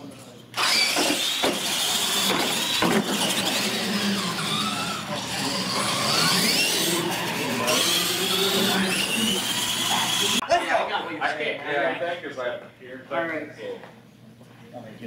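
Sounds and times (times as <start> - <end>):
toy truck electric motors whining: 0.6 - 10.4.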